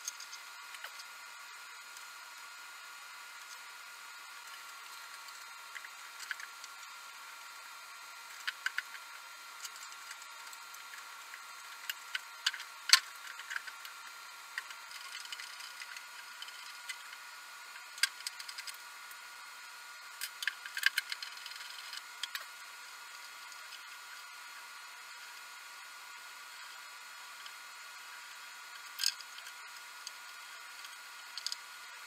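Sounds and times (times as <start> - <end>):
small parts and tools clicking: 0.0 - 1.2, 4.4 - 7.0, 8.2 - 19.2, 20.1 - 24.2, 26.5 - 32.0.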